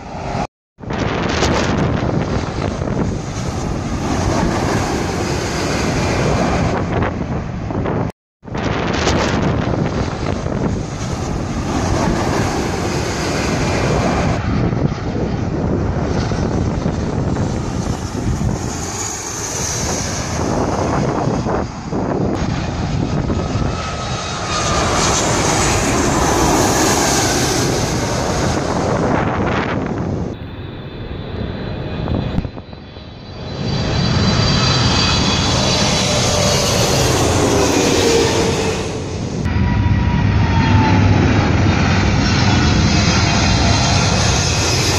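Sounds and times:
jet airliner roar passing overhead: 0:00.0 - 0:44.9.

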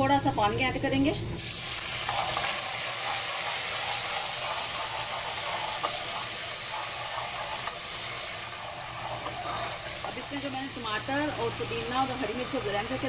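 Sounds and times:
water sizzling in hot oil: 0:01.4 - 0:13.0.

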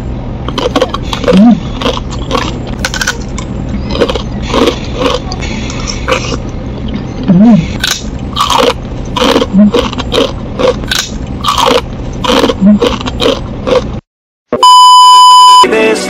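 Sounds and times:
crunchy food chewing: 0:00.5 - 0:06.4, 0:07.8 - 0:14.0
test-pattern beep: 0:14.6 - 0:15.8.

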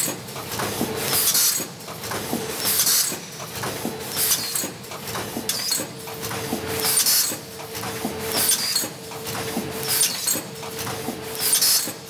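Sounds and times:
pneumatic air hiss: 0:02.6 - 0:03.4, 0:04.1 - 0:04.7, 0:08.3 - 0:08.9, 0:11.3 - 0:12.0.

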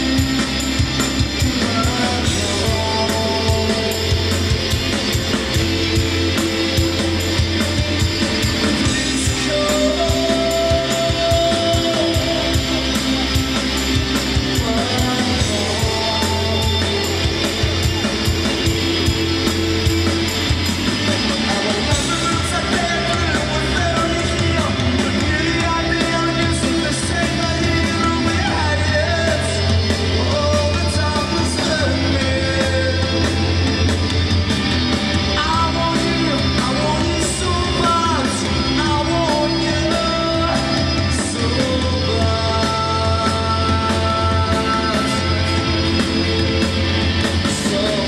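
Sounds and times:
man singing: 0:00.0 - 0:33.9, 0:35.3 - 0:48.0
bass guitar: 0:00.0 - 0:48.0
drum kit: 0:00.0 - 0:48.0
electric guitar: 0:00.0 - 0:48.0.

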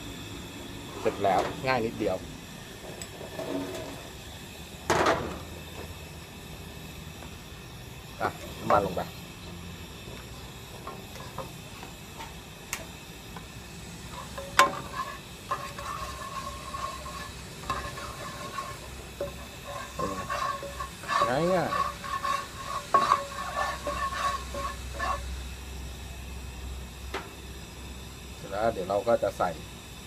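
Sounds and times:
spatula scraping wok: 0:02.8 - 0:04.2, 0:10.3 - 0:11.8, 0:14.0 - 0:25.7.

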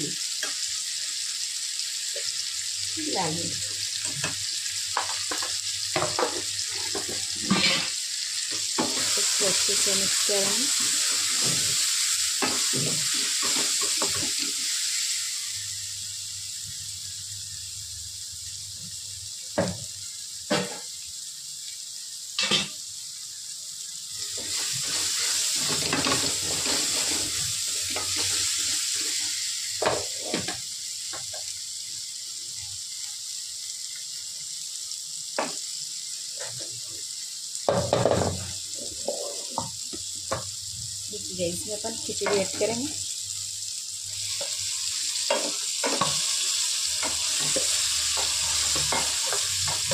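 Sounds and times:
masala sizzling in hot oil: 0:00.0 - 0:49.9
wooden spatula scraping a pan: 0:38.8 - 0:39.7.

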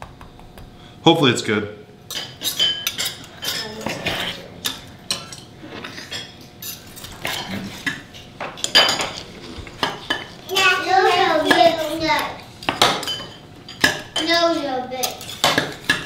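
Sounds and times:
knife and fork on wooden board: 0:02.2 - 0:10.4.

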